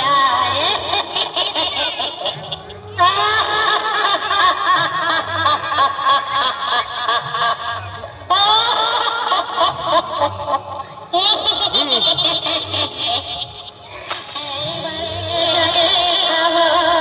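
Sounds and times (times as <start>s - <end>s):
loud laughter: 0.0s - 17.0s.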